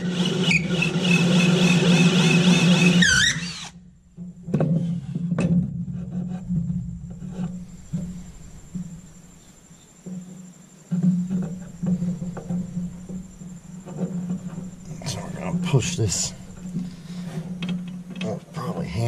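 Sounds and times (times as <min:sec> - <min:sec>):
cordless drill cutting wood: 0:00.0 - 0:03.8
sharp knocks: 0:04.1 - 0:18.4.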